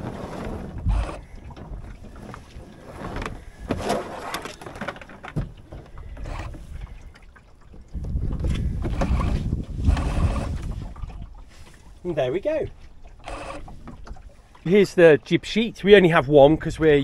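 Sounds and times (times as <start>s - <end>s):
wind rushing on microphone: 0.0s - 2.0s, 7.8s - 11.4s
sail and lines knocking and rustling: 0.0s - 14.8s.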